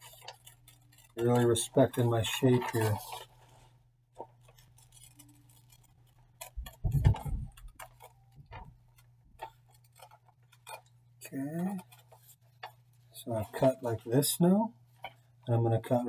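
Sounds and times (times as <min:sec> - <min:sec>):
scissors snipping paper: 0:00.0 - 0:03.3, 0:04.2 - 0:12.8.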